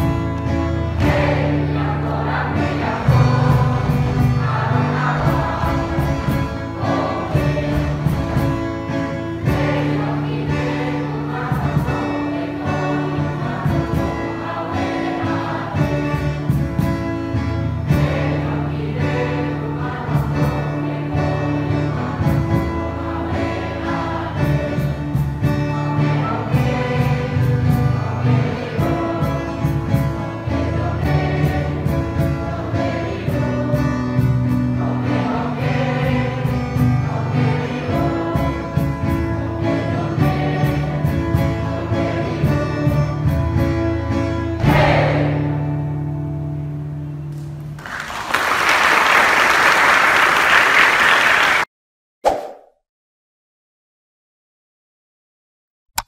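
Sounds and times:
children's choir singing: 0.0s - 16.9s, 17.7s - 43.0s, 44.5s - 45.7s
music accompaniment with steady beat: 0.0s - 47.7s
audience applause: 47.8s - 51.7s.

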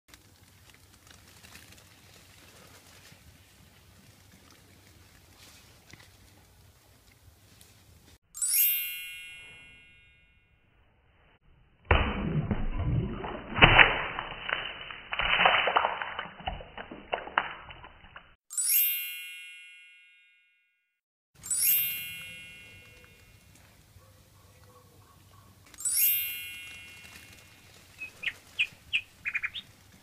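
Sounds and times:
bright chime: 8.4s - 10.5s, 18.5s - 20.7s, 21.4s - 23.5s, 25.8s - 27.8s
muffled splashing in glass jar: 12.0s - 19.2s.

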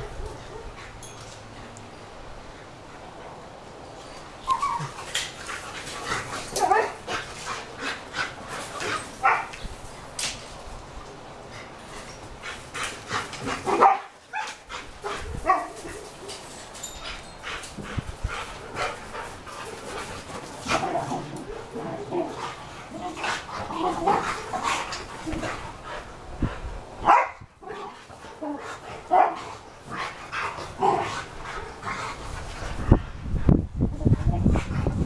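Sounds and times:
dogs barking and yipping: 0.0s - 1.2s, 4.4s - 9.8s, 12.0s - 26.2s, 27.0s - 32.9s.

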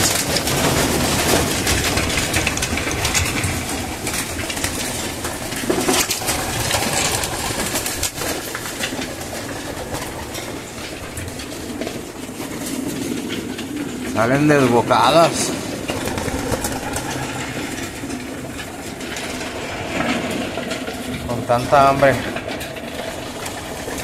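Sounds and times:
pigeon wings flapping: 0.0s - 21.3s, 22.1s - 24.0s
pigeons pecking at grain: 0.0s - 24.0s.

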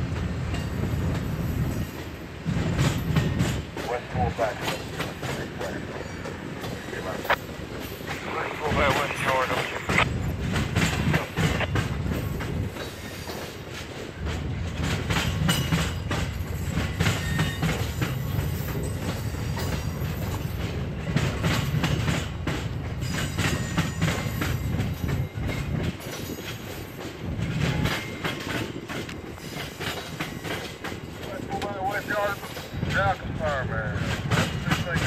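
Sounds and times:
train wheels clicking over rail joints: 0.0s - 8.3s, 10.0s - 35.0s
wind buffeting microphone: 0.0s - 13.1s, 14.0s - 31.6s.

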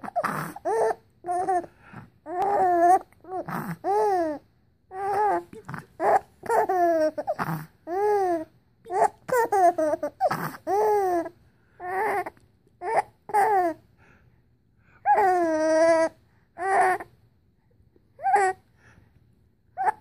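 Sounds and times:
baby laughing: 5.0s - 11.3s.

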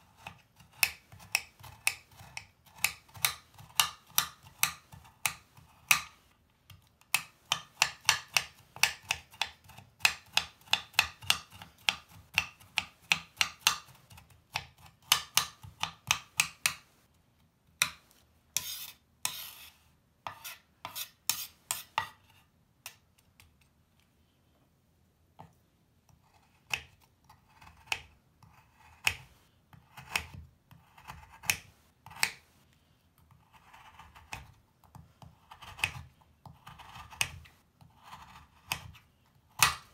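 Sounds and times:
knife chopping on cutting board: 7.1s - 16.8s, 26.7s - 32.4s, 39.6s - 39.9s
blade scraping crumbs: 18.6s - 22.4s.

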